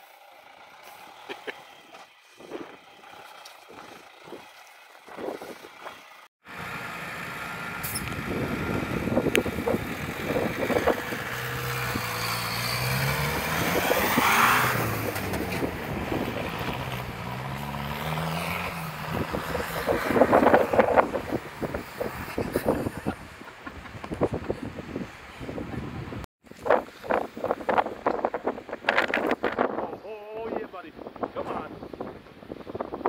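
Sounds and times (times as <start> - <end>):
diesel engine revving: 0.0 - 23.4
tyres churning through snow: 0.0 - 29.4.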